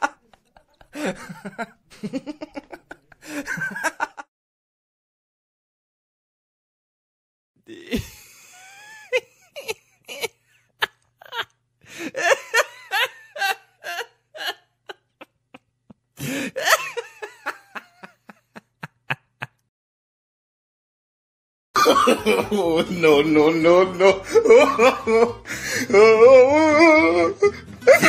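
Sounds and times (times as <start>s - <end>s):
person laughing: 0.0s - 4.3s, 7.7s - 19.7s, 21.8s - 28.0s.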